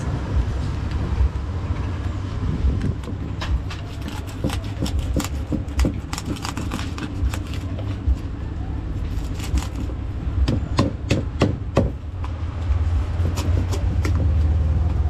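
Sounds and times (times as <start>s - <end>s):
steady low rumble: 0.0s - 15.0s
knife scraping fish on wood: 3.1s - 8.0s, 13.2s - 14.3s.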